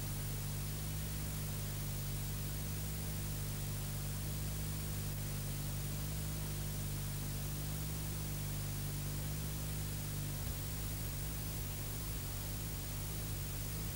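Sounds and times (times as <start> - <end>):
low steady hum: 9.2 - 13.9
steady hiss: 10.4 - 13.9.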